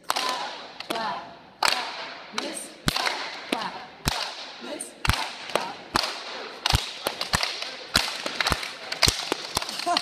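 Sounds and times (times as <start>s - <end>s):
children clapping and slapping laps: 1.6s - 4.4s, 5.0s - 10.0s.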